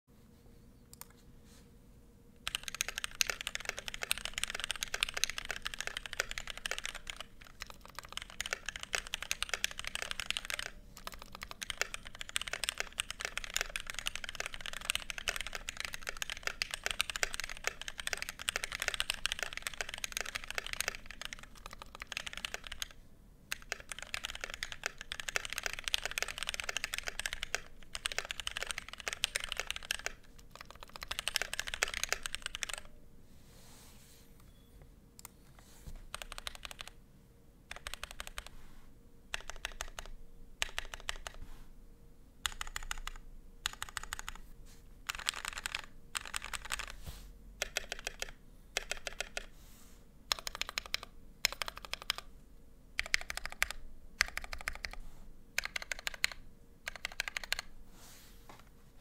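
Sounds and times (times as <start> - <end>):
mechanical keyboard typing: 2.4 - 32.9, 36.1 - 37.0, 37.7 - 38.5, 39.3 - 41.4, 42.4 - 44.4, 45.1 - 47.0, 47.6 - 49.5, 50.3 - 52.3, 53.0 - 55.0, 55.6 - 57.7.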